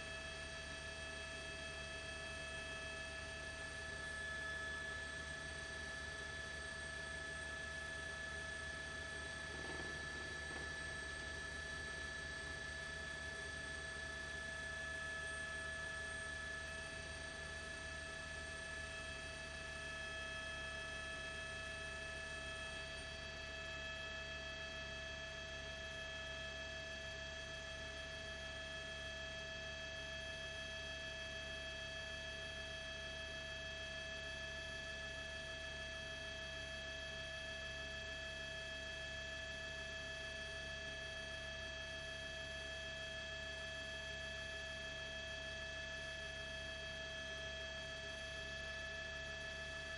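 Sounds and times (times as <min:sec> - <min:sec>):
steady high-pitched whine: 0:00.0 - 0:49.9
low steady hum: 0:07.3 - 0:14.8.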